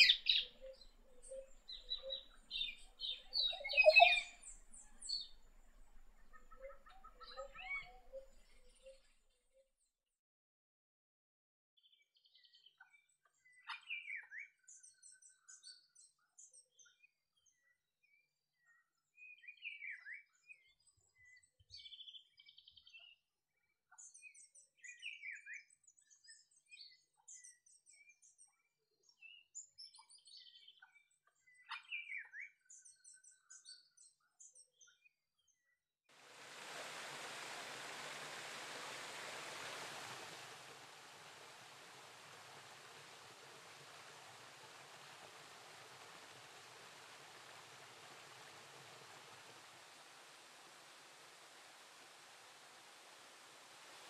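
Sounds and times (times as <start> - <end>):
birds whistling and twittering: 0.0 - 9.0
steady rushing noise: 36.2 - 54.0.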